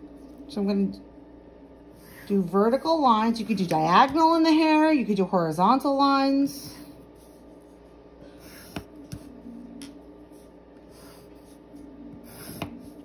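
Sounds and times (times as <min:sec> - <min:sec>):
pencil scratching on paper: 0:10.3 - 0:13.0.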